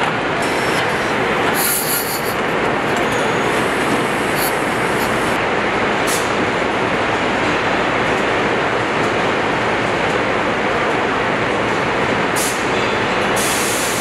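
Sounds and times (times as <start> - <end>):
dense machinery noise: 0.0 - 14.0
high-pitched hissing bursts: 0.4 - 2.5, 3.2 - 5.4.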